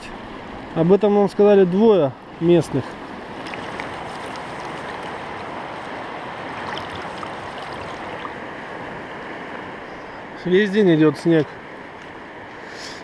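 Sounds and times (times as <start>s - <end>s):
river rushing over stones: 2.3s - 9.4s.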